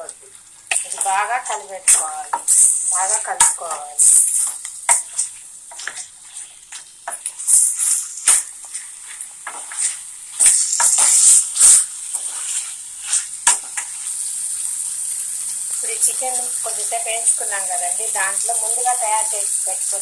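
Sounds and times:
chicken frying in hot oil: 0.0 - 20.0
spoon scraping and clinking on pan: 0.7 - 14.1.

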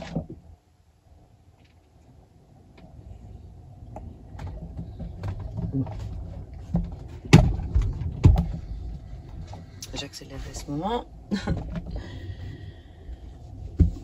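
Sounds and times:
heavy thumps: 4.3 - 9.8, 13.6 - 14.0.

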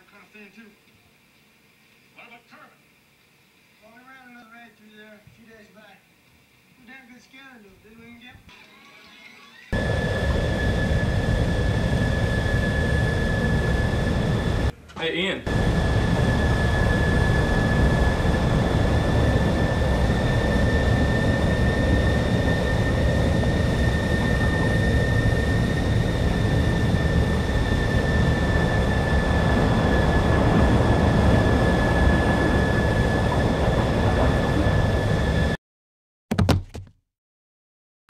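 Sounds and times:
roaring air blast with whine: 9.8 - 14.7, 15.5 - 35.6.

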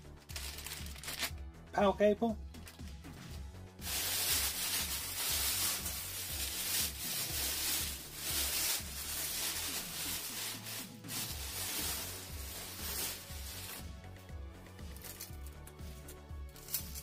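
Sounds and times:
plastic bag rustling: 0.3 - 1.3, 3.8 - 14.0.

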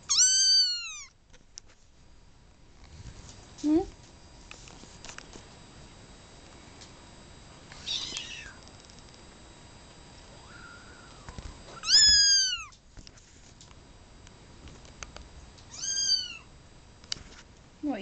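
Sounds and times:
kitten meowing: 0.1 - 1.2, 7.8 - 8.6, 11.8 - 12.8, 15.7 - 16.5.

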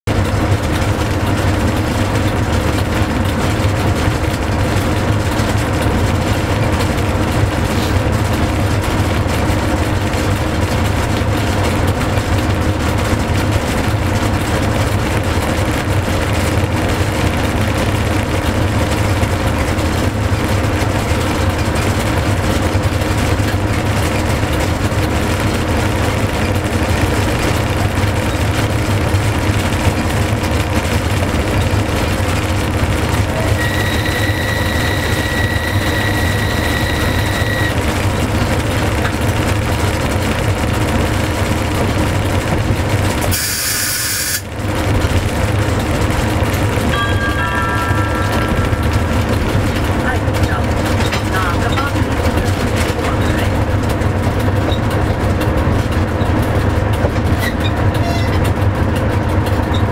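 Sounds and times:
train running with low hum: 0.0 - 59.9
steady electric tones: 32.9 - 38.3, 46.3 - 52.2.

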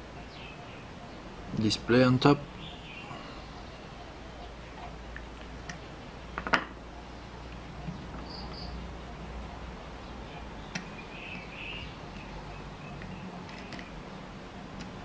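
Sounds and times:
bird chirping: 0.0 - 15.0.

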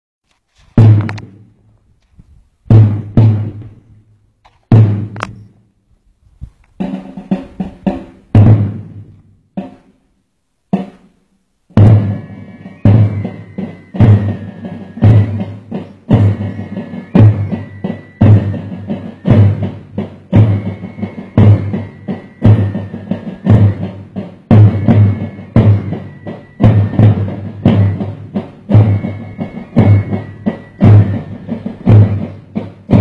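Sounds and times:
heavy ringing drum strikes: 11.8 - 33.0
held high tone: 11.8 - 33.0.

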